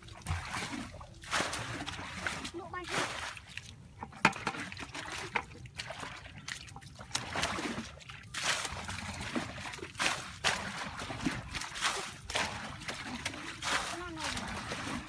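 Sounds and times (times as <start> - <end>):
water splashing from bucket: 0.0 - 15.0
water trickling: 0.0 - 15.0.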